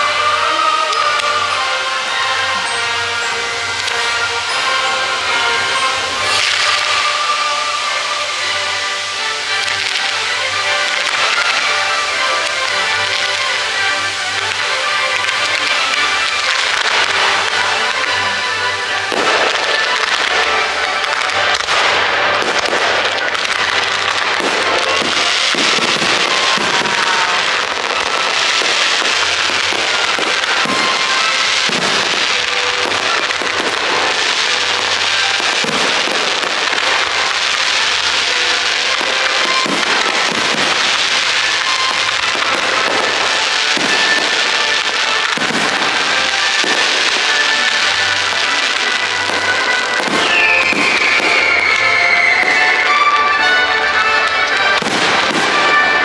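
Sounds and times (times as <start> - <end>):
fireworks crackling hiss: 0.0 - 56.0
fireworks popping: 0.0 - 56.0.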